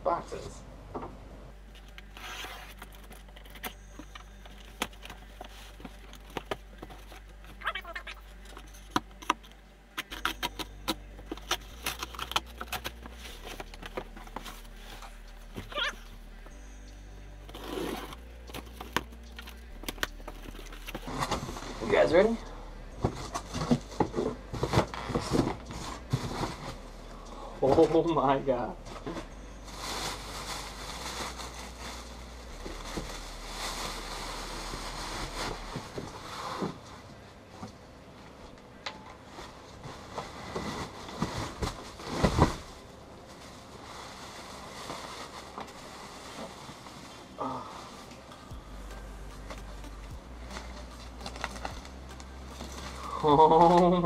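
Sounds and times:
plastic wrapping crinkling: 1.6s - 28.2s, 28.8s - 37.2s, 39.2s - 54.0s
cardboard box being unpacked: 1.7s - 9.4s, 10.0s - 16.5s, 17.4s - 22.4s, 23.0s - 27.1s, 49.4s - 54.0s
packing material rustling: 1.7s - 16.5s, 17.5s - 22.4s, 29.2s - 36.8s, 39.4s - 48.3s, 49.0s - 54.0s.

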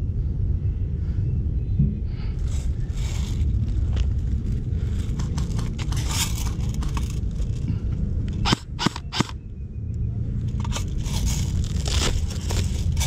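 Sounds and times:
wind rumble on microphone: 0.0s - 13.0s
handling and movement noise: 2.3s - 9.4s, 10.3s - 13.0s
sharp clicks: 8.3s - 10.0s.

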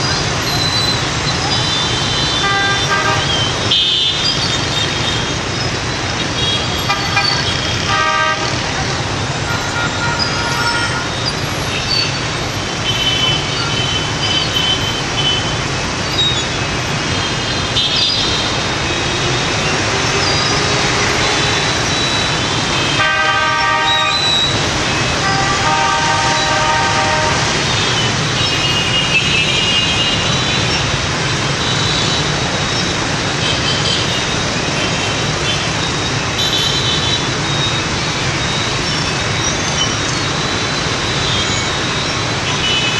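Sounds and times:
motorbike engines: 0.0s - 42.9s
road hum: 0.0s - 42.9s
horn toots and beeps: 0.5s - 5.4s, 6.2s - 16.5s, 17.2s - 30.9s.

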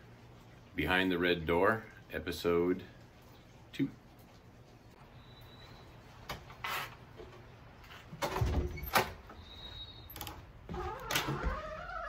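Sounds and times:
door squeak: 8.4s - 12.0s.

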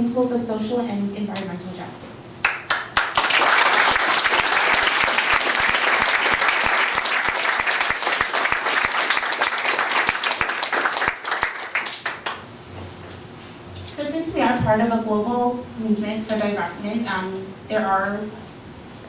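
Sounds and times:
audience applauding: 2.4s - 12.4s.

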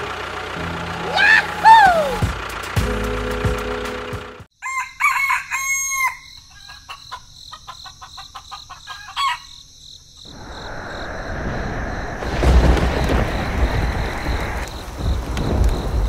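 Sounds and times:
rooster crowing: 1.0s - 2.3s, 4.6s - 7.0s, 8.8s - 9.6s
chicken clucks: 6.5s - 9.6s
steady rushing like rain: 10.4s - 16.0s.

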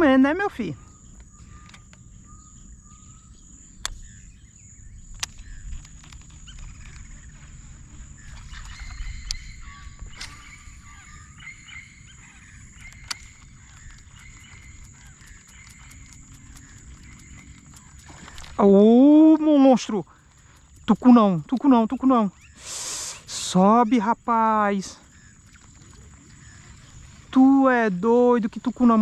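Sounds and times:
birds calling: 0.0s - 29.0s
sharp clicks: 3.8s - 4.1s, 5.1s - 7.3s, 8.3s - 9.5s, 12.6s - 18.7s, 19.3s - 22.2s.

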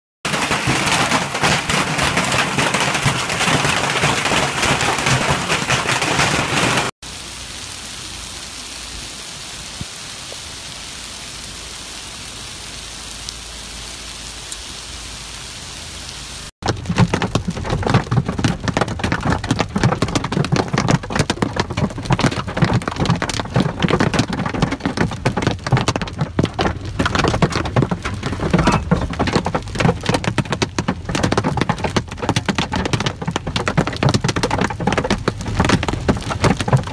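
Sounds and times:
hail clattering on plastic roof: 0.3s - 6.9s, 16.6s - 36.9s
hail drumming on windshield: 0.3s - 6.9s, 16.6s - 36.9s
hail and rain hissing on lawn: 0.3s - 36.9s.

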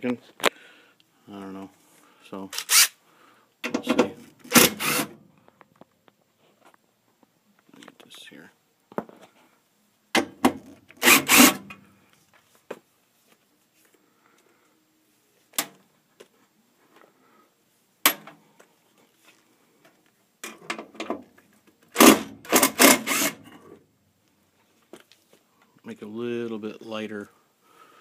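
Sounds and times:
cordless drill running: 4.5s - 5.1s, 11.0s - 11.6s, 22.0s - 23.4s.

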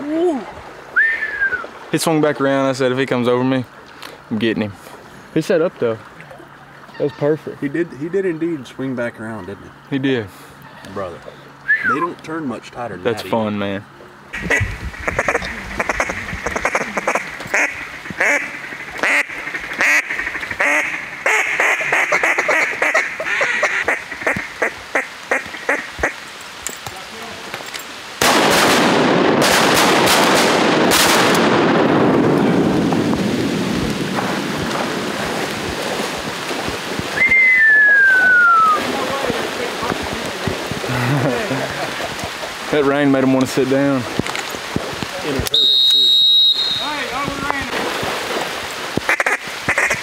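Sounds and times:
heavy rain hissing: 14.3s - 50.0s
duck call quacking: 14.4s - 26.2s, 49.1s - 50.0s.

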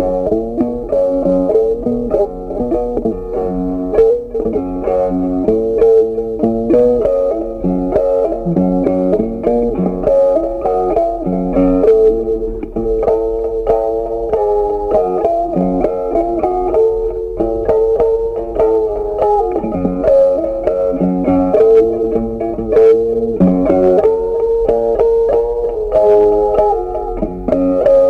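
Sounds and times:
plucked guitar melody: 0.0s - 28.0s
bass line: 7.9s - 9.8s, 23.4s - 24.0s.

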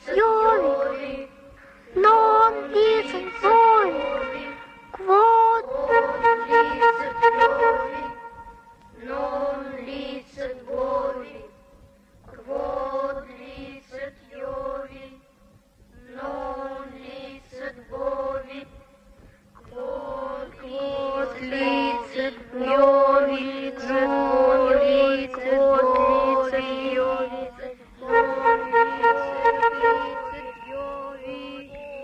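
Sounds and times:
group chanting in unison: 0.0s - 1.4s, 2.0s - 8.4s, 9.0s - 11.5s, 16.0s - 18.8s, 19.7s - 32.0s.

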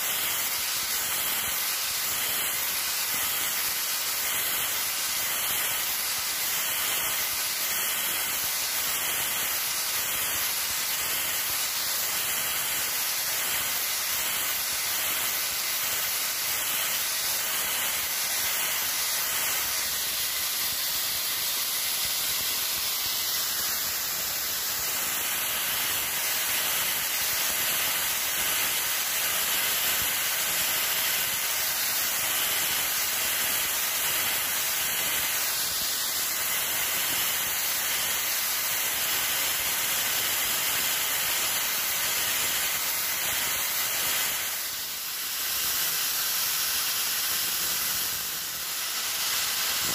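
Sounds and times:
angle grinder sanding: 47.3s - 49.9s.

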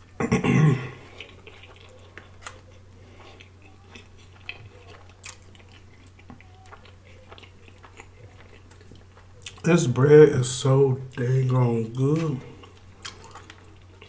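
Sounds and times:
chewing and biting food: 1.0s - 9.7s, 12.0s - 14.0s.

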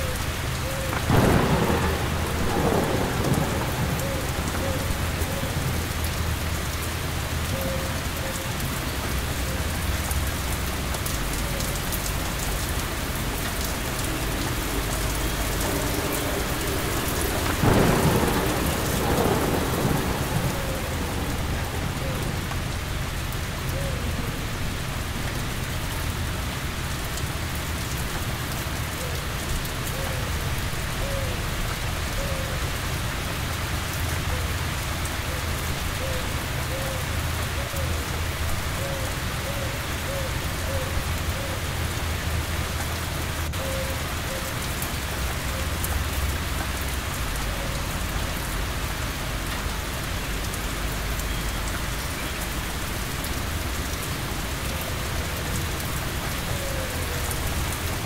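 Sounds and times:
steady rain falling: 0.0s - 58.0s
thunder rumbling: 0.6s - 8.2s, 9.0s - 26.4s.

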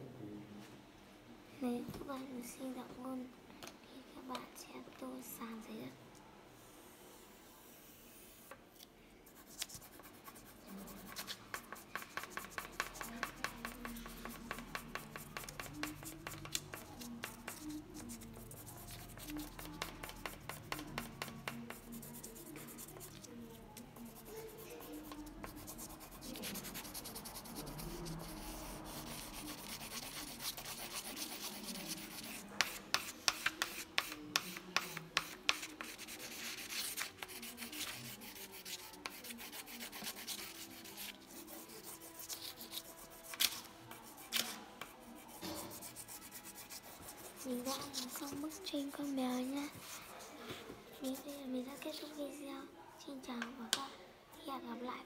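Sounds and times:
colored pencil scribbling on paper: 9.3s - 52.2s.

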